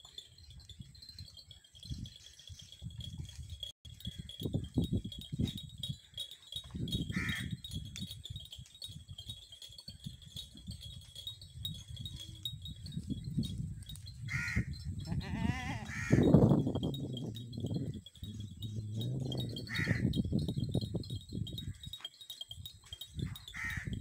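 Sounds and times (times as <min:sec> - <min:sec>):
crow cawing: 0:07.1 - 0:07.5, 0:14.3 - 0:14.7, 0:15.8 - 0:16.3, 0:19.7 - 0:20.1, 0:23.5 - 0:24.0
goat bleating: 0:14.4 - 0:16.2.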